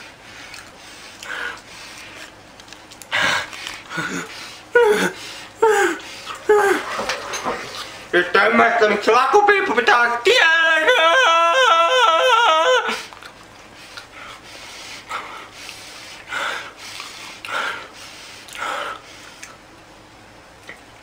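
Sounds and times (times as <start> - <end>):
breathy huffs: 3.1 - 6.9
man wailing with warbling pitch: 4.8 - 6.9, 10.3 - 13.0.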